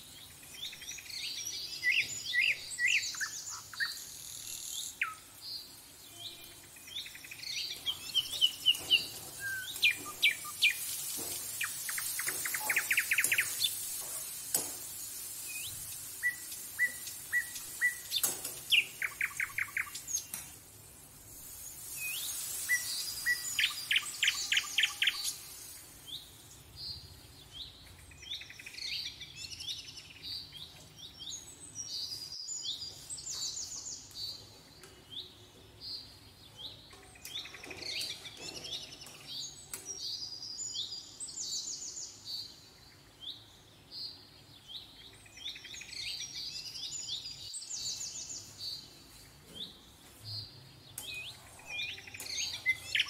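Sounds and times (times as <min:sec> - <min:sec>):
small birds chirping and trilling: 0:00.0 - 0:53.0
soft high hiss: 0:00.0 - 0:53.0.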